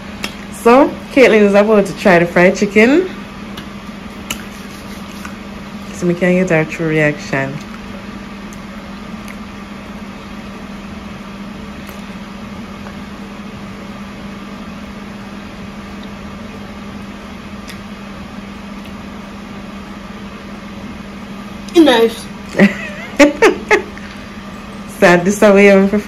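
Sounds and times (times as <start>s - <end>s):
kitchen appliance humming: 0.0s - 26.0s.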